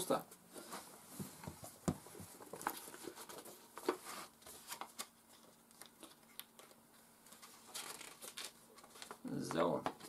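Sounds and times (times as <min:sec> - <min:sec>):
paper rustling and crinkling: 0:02.2 - 0:10.0.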